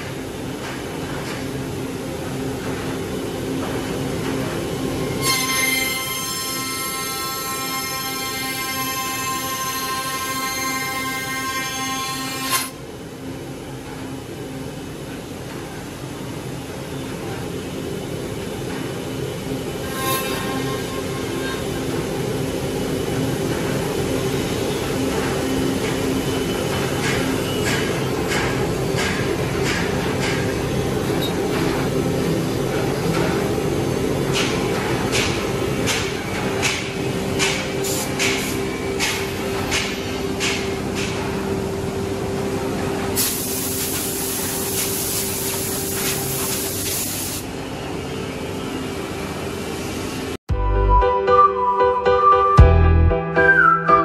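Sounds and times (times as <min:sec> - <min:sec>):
compressed air hisses: 0:43.2 - 0:47.5.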